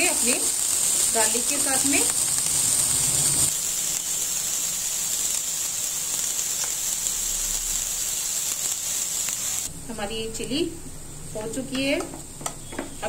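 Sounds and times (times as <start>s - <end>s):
garlic sizzling in hot oil: 0.0s - 9.7s.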